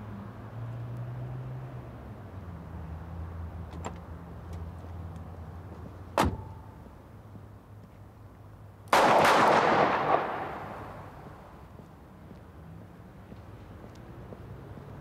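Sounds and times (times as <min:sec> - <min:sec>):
gunshots echoing: 0:08.9 - 0:11.6
sharp crack: 0:08.9 - 0:11.6.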